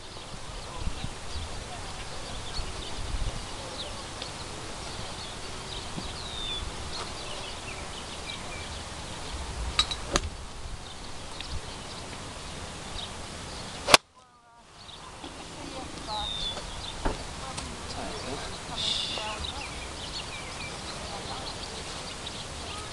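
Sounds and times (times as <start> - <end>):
small birds chirping: 0.0 - 22.9
golf club striking ball: 9.7 - 10.3, 13.8 - 14.1.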